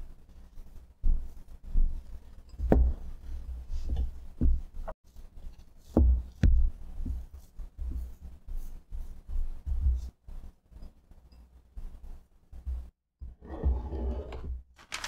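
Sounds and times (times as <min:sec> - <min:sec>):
spatula scraping glass bowl: 0:13.4 - 0:14.5.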